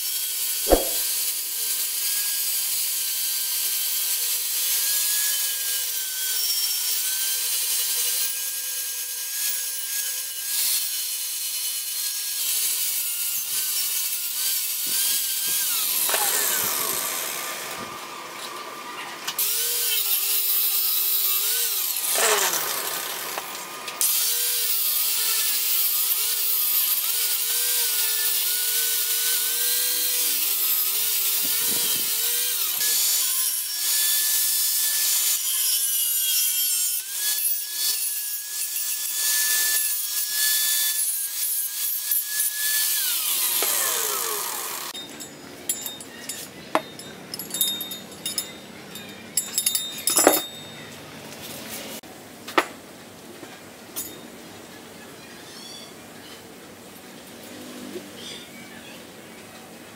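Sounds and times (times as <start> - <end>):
angle grinder grinding steel: 0.0 - 50.9
chain links clinking: 45.0 - 50.9.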